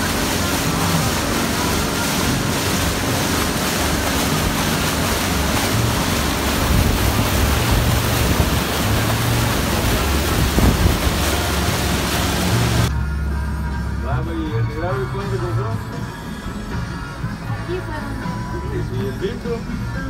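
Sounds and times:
water rushing in boat wake: 0.0 - 12.9
boat engine droning: 0.0 - 20.0
wind buffeting microphone: 2.2 - 12.9.

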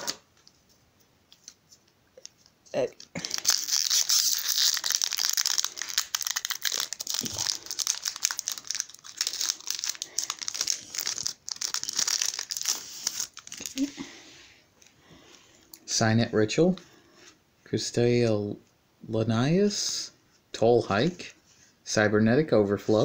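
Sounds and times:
foil wrapper crinkling and tearing: 3.0 - 13.9.

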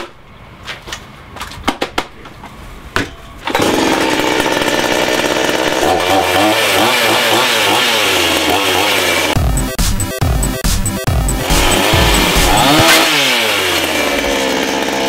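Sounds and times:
chainsaw revving: 3.5 - 9.7, 11.2 - 15.0.

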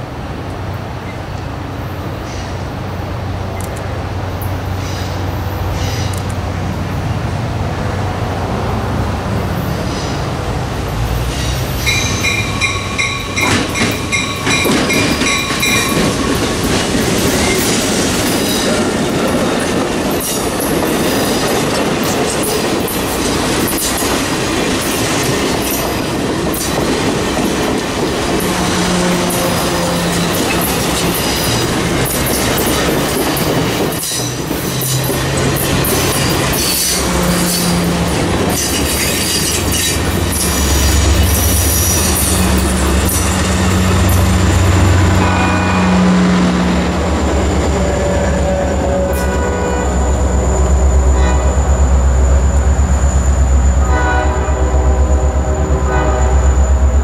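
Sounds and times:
diesel locomotive engine rumbling: 0.0 - 57.0
train wheels clicking over rail joints: 11.2 - 45.1
locomotive bell ringing: 11.8 - 16.4, 33.4 - 54.0.

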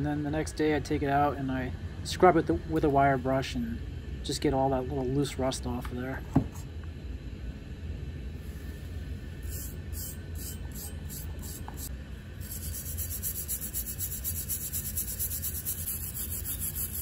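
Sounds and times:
wire brush scrubbing metal: 9.5 - 17.0.

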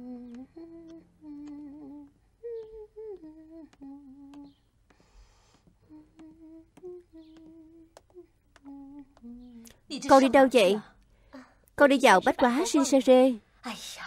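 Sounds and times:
person humming: 0.0 - 4.6, 5.8 - 10.3.

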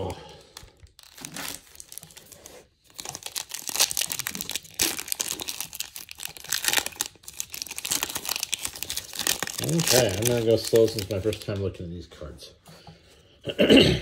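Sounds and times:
foil wrapper crinkling and tearing: 0.0 - 11.6.

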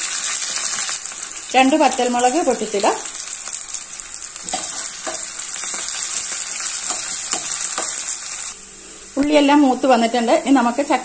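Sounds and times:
vegetables sizzling in hot oil: 0.0 - 11.0.

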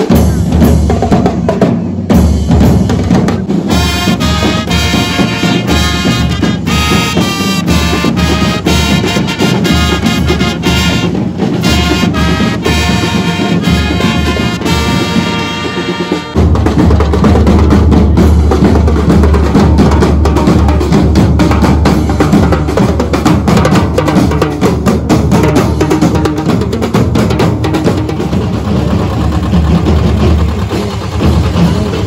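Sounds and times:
marching drums beating: 0.0 - 32.0
trumpets playing a tune: 3.7 - 16.4.

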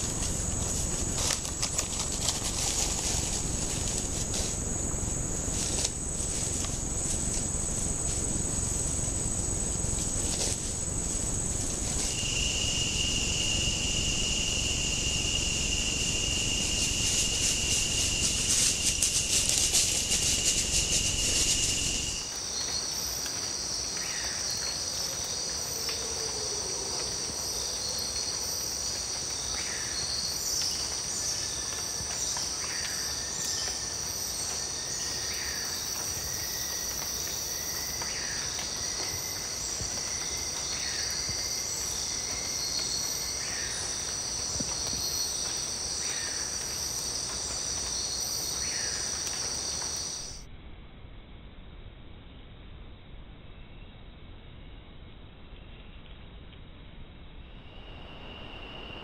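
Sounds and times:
hissy buzz: 0.0 - 22.3
insects trilling: 0.0 - 50.5, 57.4 - 59.0
short insect chirps: 0.0 - 50.5, 57.4 - 59.0.

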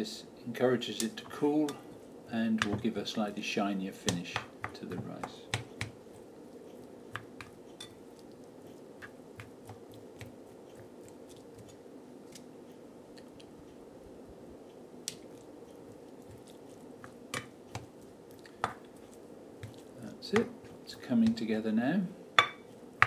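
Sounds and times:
faint steady hum: 0.0 - 23.0
rice paddle squishing sticky rice: 0.9 - 12.5, 15.0 - 21.4.

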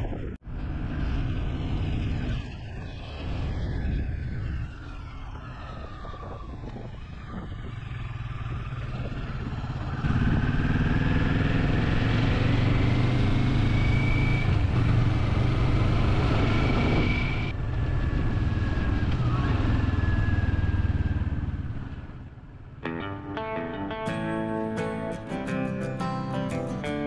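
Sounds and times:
wind rushing over microphone: 0.0 - 22.8
motorcycle engine running: 7.1 - 22.8.

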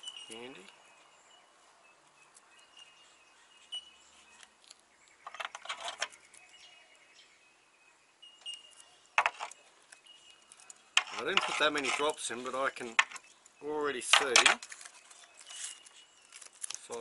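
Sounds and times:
light clinks and rustling: 0.0 - 0.8
faint birdsong: 0.0 - 17.0.

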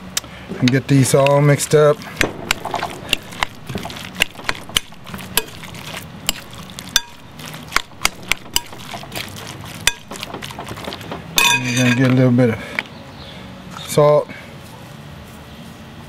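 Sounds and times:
hands mixing food in glass bowl: 1.1 - 12.2.

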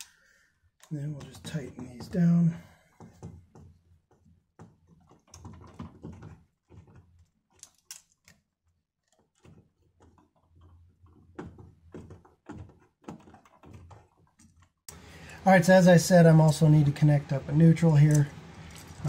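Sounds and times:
switch and wires handled: 4.8 - 15.0.

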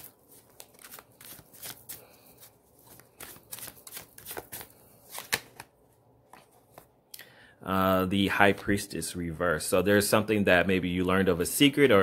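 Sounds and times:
cards being shuffled: 0.0 - 6.9.

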